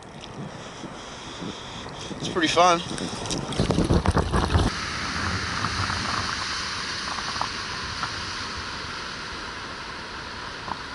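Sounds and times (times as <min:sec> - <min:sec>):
surf washing over rocks: 0:02.2 - 0:10.9.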